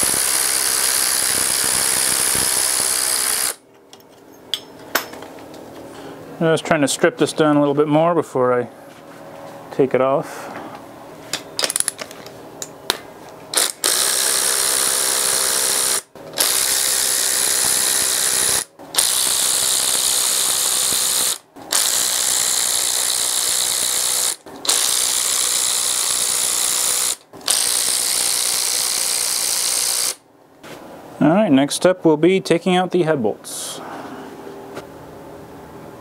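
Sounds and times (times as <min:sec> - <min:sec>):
cordless electric ratchet spinning: 0:00.0 - 0:03.6, 0:13.5 - 0:30.2.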